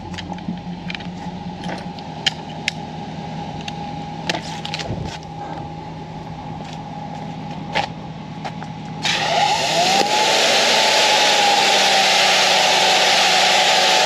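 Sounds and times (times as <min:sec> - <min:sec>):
pressure washer humming and whining: 0:09.0 - 0:14.0.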